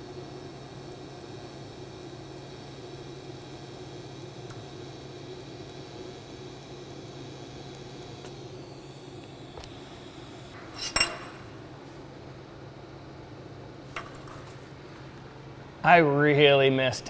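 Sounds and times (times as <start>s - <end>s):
steady low hum: 0.0s - 17.0s
steel tubing clinking on metal table: 10.8s - 11.5s.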